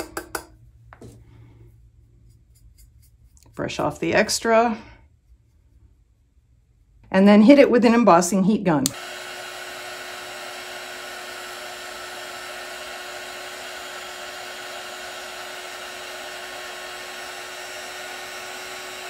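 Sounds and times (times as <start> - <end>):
heat gun blowing with hum: 8.8 - 19.0.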